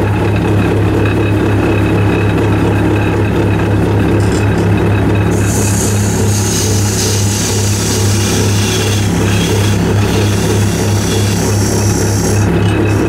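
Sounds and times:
wood lathe motor hum: 0:00.0 - 0:13.0
turning tool hissing on wood: 0:05.3 - 0:13.0.

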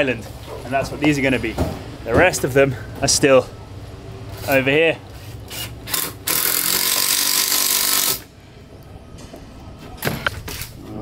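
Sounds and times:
electric power tool running: 0:05.5 - 0:08.2.

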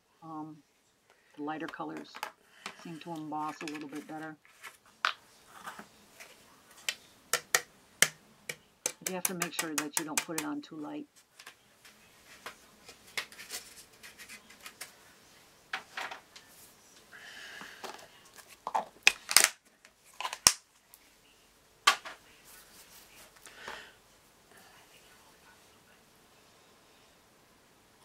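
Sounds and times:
plastic containers clicking and tapping: 0:01.7 - 0:04.3, 0:06.8 - 0:10.6
soft rustle: 0:02.6 - 0:07.1, 0:22.2 - 0:23.4.

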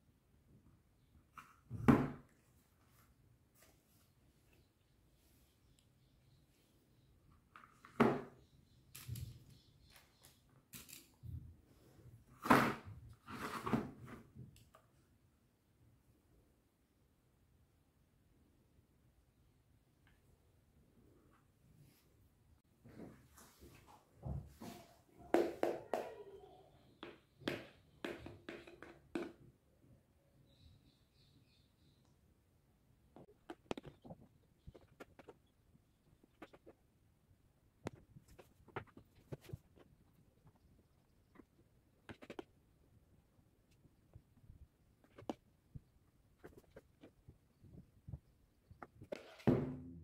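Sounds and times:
plastic moulds tapping and scraping: 0:27.0 - 0:29.4.

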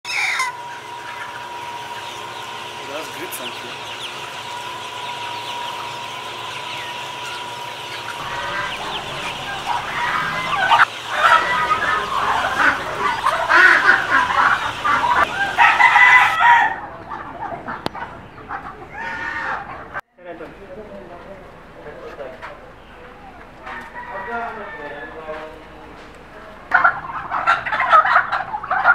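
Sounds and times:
chickens clucking: 0:00.0 - 0:28.9
rooster crowing: 0:00.1 - 0:00.9, 0:08.1 - 0:17.0, 0:23.6 - 0:25.5.

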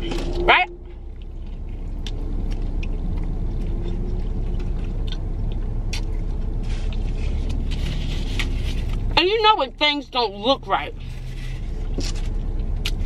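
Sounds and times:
person chewing food: 0:00.0 - 0:09.2, 0:11.1 - 0:13.0
low rumble inside car: 0:00.0 - 0:13.0
wet mouth clicks: 0:02.0 - 0:06.2.

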